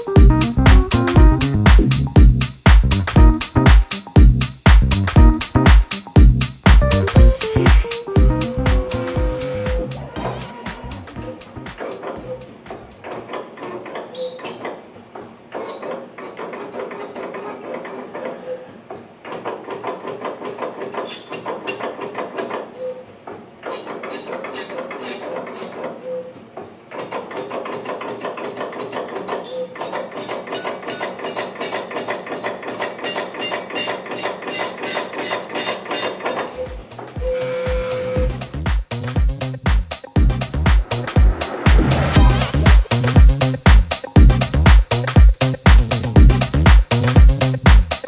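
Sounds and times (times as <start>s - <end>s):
machine clicking and knocking: 11.6s - 37.3s.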